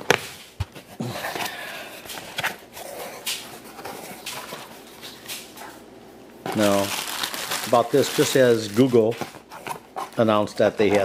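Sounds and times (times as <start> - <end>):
plastic packing rustling: 6.4 - 11.0.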